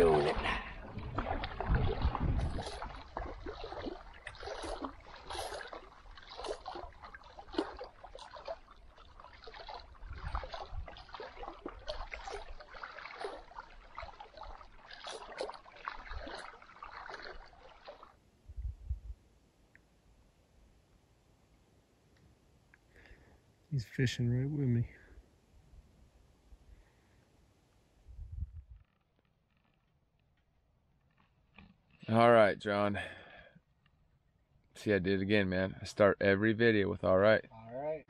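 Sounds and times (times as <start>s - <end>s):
lake water splashing and lapping: 0.0s - 18.4s.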